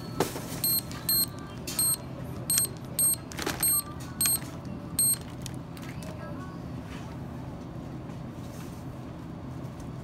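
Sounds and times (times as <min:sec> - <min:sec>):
keypad beeps: 0:00.0 - 0:05.3.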